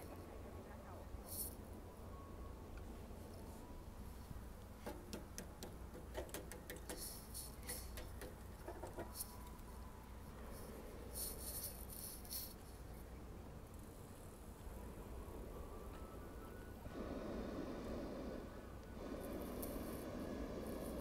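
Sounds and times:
short hissy rattles: 6.9 - 8.0.

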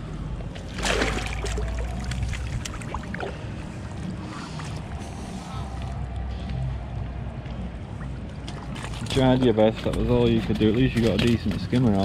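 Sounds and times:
small fish splashes: 0.6 - 3.6
water pouring through net: 0.6 - 5.2
sudden splash into river: 0.7 - 2.9.

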